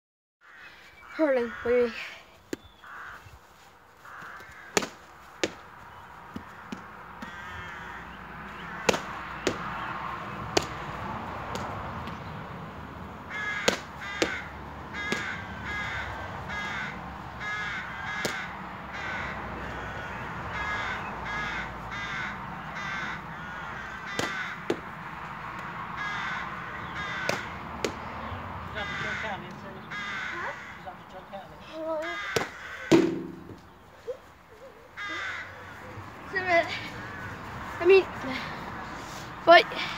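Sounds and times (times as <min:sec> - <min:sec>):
crows cawing: 0:00.4 - 0:10.8, 0:13.2 - 0:39.2
ball hitting wall: 0:04.7 - 0:05.6, 0:08.8 - 0:09.6, 0:13.6 - 0:14.4, 0:24.2 - 0:24.9, 0:27.2 - 0:28.0, 0:32.3 - 0:33.6
hurley striking ball: 0:04.7 - 0:05.6, 0:08.8 - 0:09.7, 0:13.6 - 0:14.4, 0:15.1 - 0:15.4, 0:18.2 - 0:18.4, 0:24.2 - 0:24.9, 0:27.2 - 0:28.0, 0:32.3 - 0:33.7.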